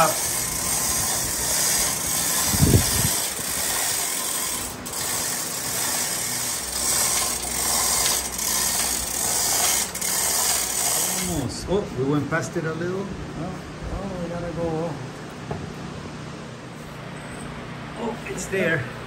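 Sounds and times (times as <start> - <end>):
hoist chain rattling: 0.0 - 11.4
ratchet clicking: 0.0 - 11.4.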